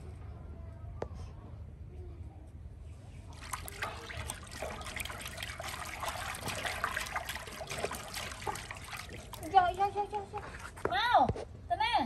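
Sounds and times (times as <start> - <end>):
water trickling and splattering: 3.3 - 10.9.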